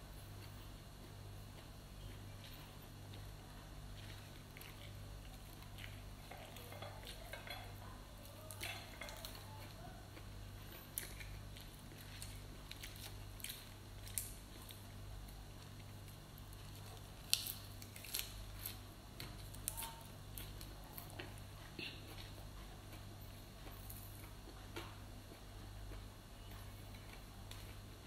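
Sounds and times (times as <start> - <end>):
low steady hum: 0.0 - 28.0
leafy greens tearing and snapping: 8.2 - 9.8, 10.9 - 22.4.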